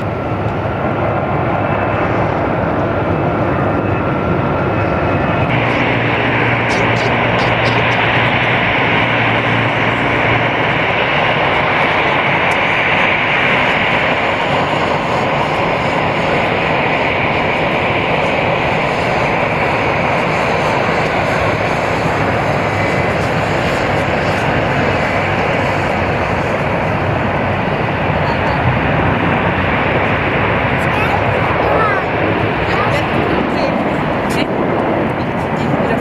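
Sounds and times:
jet engines at takeoff thrust: 0:00.0 - 0:36.0.

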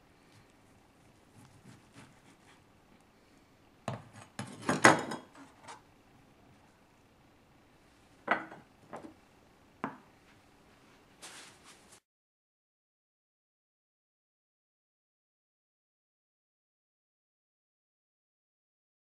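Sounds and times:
knife clattering on stone countertop: 0:03.9 - 0:05.8
ceramic bowl knocking on board: 0:08.3 - 0:09.1, 0:09.8 - 0:10.0
short rustle: 0:10.8 - 0:12.0.

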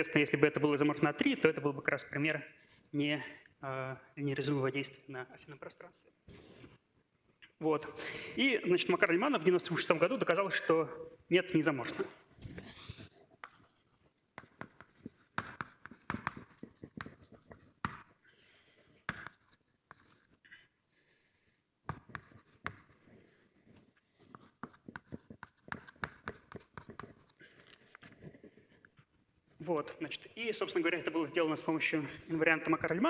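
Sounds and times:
writing on a board: 0:12.5 - 0:18.2, 0:18.9 - 0:20.4, 0:21.8 - 0:28.7.

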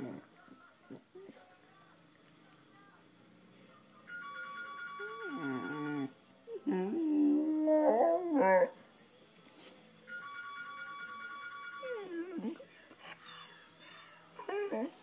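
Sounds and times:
phone ringtone: 0:04.1 - 0:06.1, 0:10.1 - 0:12.1.

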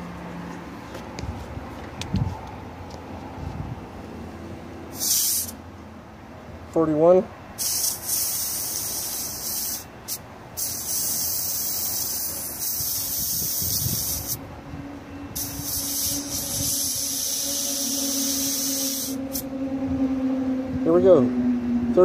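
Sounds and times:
air hissing from tire valve: 0:04.9 - 0:05.6, 0:07.6 - 0:14.4, 0:15.3 - 0:19.5.

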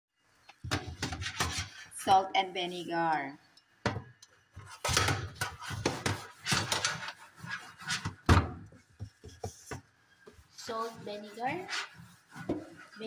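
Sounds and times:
sponge scrubbing metal mesh: 0:05.4 - 0:08.2, 0:10.6 - 0:13.0.

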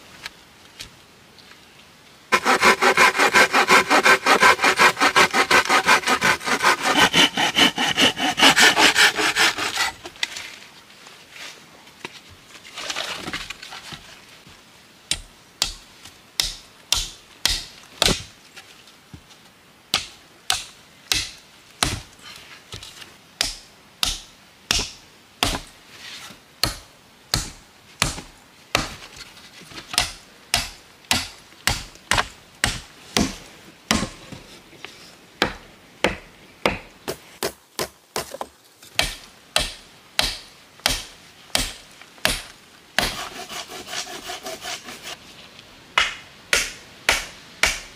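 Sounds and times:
hand tool striking wood: 0:02.3 - 0:09.9, 0:16.4 - 0:18.3, 0:29.9 - 0:34.2, 0:35.4 - 0:44.9, 0:46.0 - 0:47.9.

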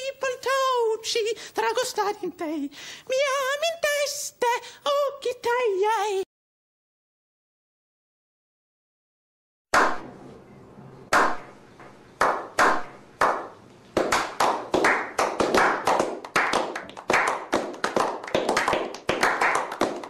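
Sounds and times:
group clapping: 0:09.8 - 0:10.0, 0:11.1 - 0:11.5, 0:12.2 - 0:20.0.

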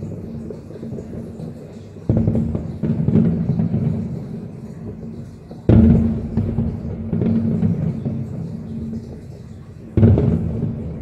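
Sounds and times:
fireworks booming: 0:00.0 - 0:11.0
heavy firework boom: 0:02.1 - 0:09.3, 0:10.0 - 0:11.0.

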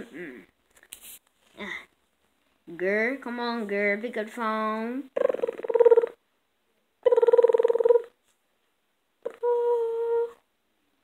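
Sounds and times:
person imitating phone ring: 0:05.2 - 0:06.2, 0:07.0 - 0:08.1.

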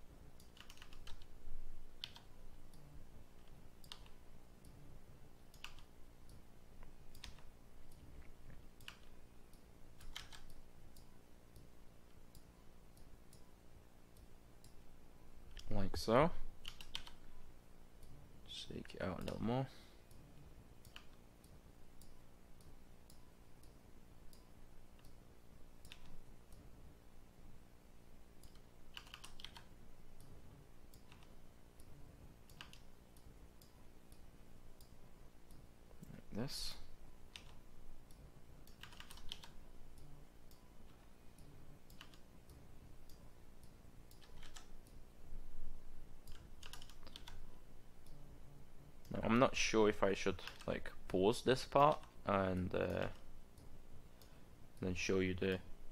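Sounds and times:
keyboard and mouse clicking: 0:00.4 - 0:01.3, 0:02.0 - 0:02.8, 0:03.4 - 0:04.8, 0:05.5 - 0:06.4, 0:07.1 - 0:08.0, 0:08.8 - 0:13.5, 0:15.5 - 0:15.7, 0:16.6 - 0:17.2, 0:20.8 - 0:25.2, 0:25.8 - 0:26.6, 0:28.4 - 0:30.3, 0:30.9 - 0:36.2, 0:37.3 - 0:45.0, 0:46.2 - 0:48.2, 0:50.4 - 0:50.8
mouse and keyboard clicks: 0:43.1 - 0:45.0.

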